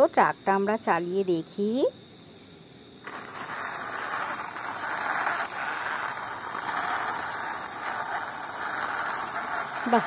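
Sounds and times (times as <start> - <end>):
toy truck wheels scraping concrete: 3.0 - 10.0.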